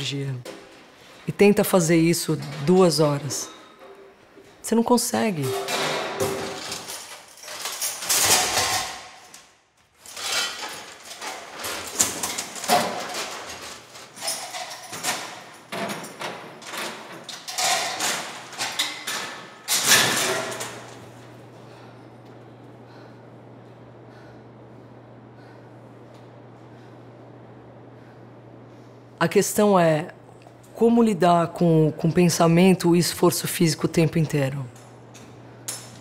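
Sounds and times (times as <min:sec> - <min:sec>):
scrap iron and chains clanking: 0:05.4 - 0:09.4, 0:10.0 - 0:21.0
low steady hum: 0:10.0 - 0:36.0.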